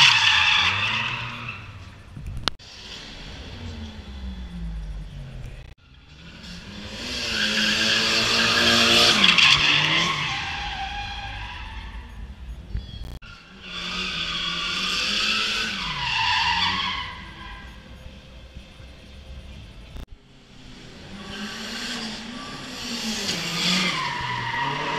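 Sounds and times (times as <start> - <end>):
car engine revving: 0.0 - 24.9.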